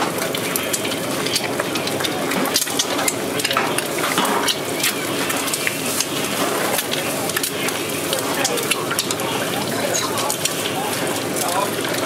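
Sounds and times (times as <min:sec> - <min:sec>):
dough frying in hot oil: 0:00.0 - 0:12.0
sharp crackles and pops: 0:00.0 - 0:12.0.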